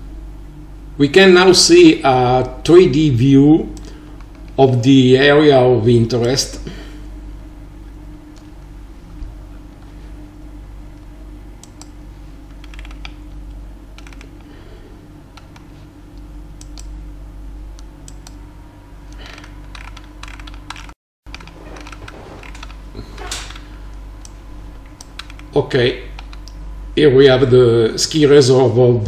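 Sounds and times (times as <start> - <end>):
steady low hum: 0.0 - 29.0
computer keyboard clicks: 12.5 - 13.2, 14.0 - 14.5, 16.6 - 16.9, 19.2 - 22.8, 24.2 - 25.5, 26.1 - 26.6.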